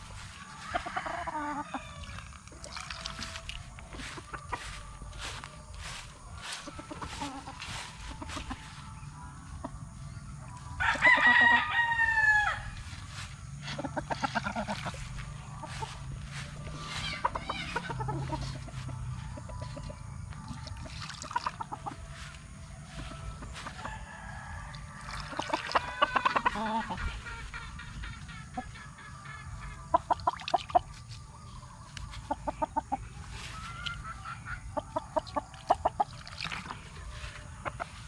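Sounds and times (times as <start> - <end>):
chickens crowing and clucking: 0.0 - 38.0
rooster crowing loudly: 0.4 - 2.3, 10.8 - 12.8, 23.8 - 27.0.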